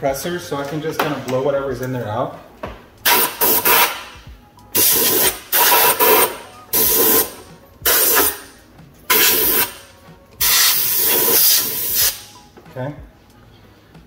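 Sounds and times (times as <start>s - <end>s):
compressed air blasts: 3.0s - 4.2s, 4.8s - 12.3s.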